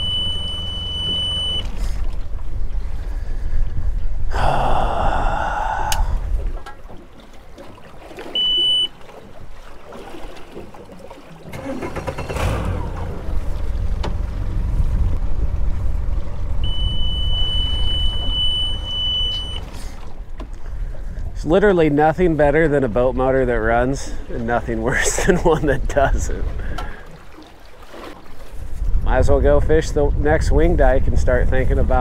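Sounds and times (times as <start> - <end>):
warning alarm beeps: 0.0 - 1.8, 8.3 - 9.0, 16.6 - 19.8
outboard motor rumbling: 0.0 - 32.0.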